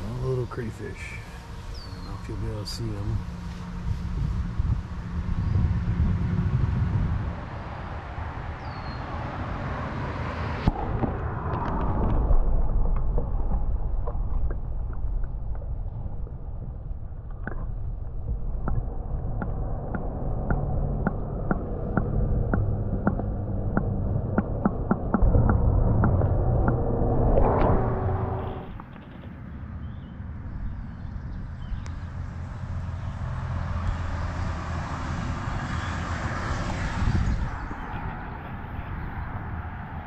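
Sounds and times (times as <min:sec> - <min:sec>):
outdoor low rumble: 0:00.0 - 0:40.0
sharp underwater clicks: 0:10.7 - 0:26.9
muffled underwater rumble: 0:10.7 - 0:33.2.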